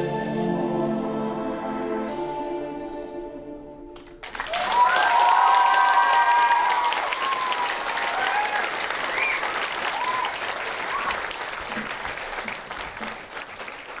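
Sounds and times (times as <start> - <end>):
audience applauding: 4.0 - 14.0
short calls from audience: 4.5 - 13.4.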